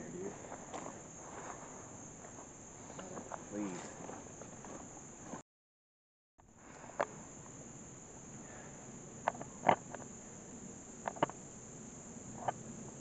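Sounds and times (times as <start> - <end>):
high-pitched insect chorus: 0.0 - 5.4, 6.4 - 13.0
footsteps on twigs and dry leaves: 0.2 - 5.4.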